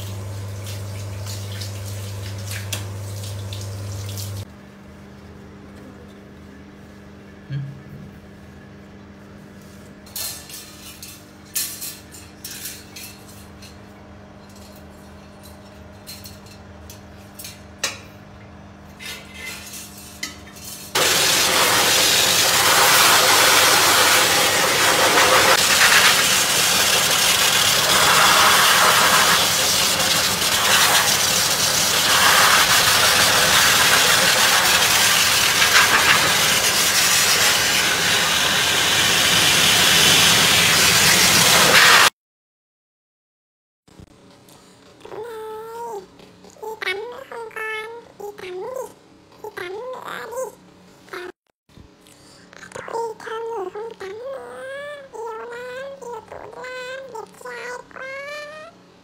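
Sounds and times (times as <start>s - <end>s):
blower dryer rushing air: 21.0s - 42.1s.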